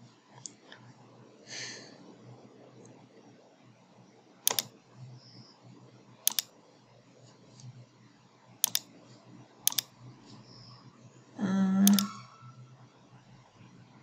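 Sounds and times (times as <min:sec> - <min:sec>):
faint low hum: 0:00.0 - 0:14.0
computer mouse button clicking: 0:04.5 - 0:04.7, 0:06.3 - 0:06.5, 0:08.6 - 0:08.9, 0:09.7 - 0:09.9, 0:11.8 - 0:12.2.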